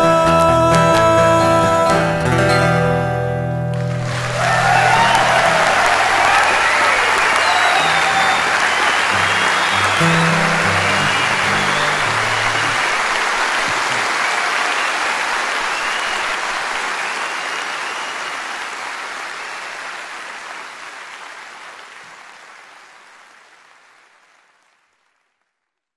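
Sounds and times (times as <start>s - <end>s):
low guitar notes: 0.0s - 6.2s, 7.9s - 13.0s
audience applauding: 3.8s - 25.7s.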